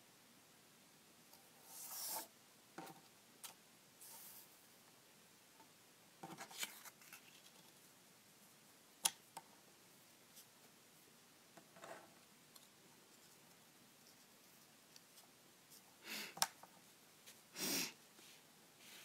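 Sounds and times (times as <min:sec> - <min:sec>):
paper rustling: 0:06.3 - 0:07.8.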